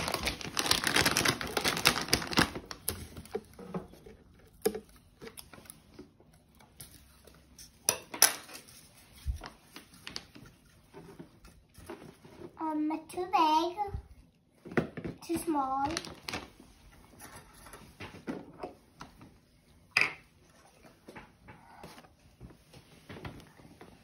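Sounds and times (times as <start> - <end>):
paper bedding rustling: 0.0 - 2.8, 15.5 - 17.2.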